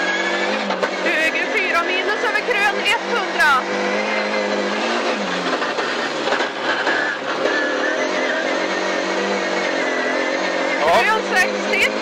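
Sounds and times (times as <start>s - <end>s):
car engine running hard: 0.0s - 12.0s
tyre and road noise: 0.0s - 12.0s.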